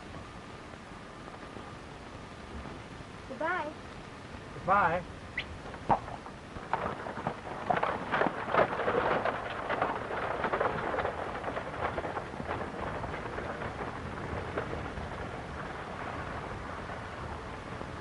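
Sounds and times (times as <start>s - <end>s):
wheels rumbling: 0.0s - 18.0s.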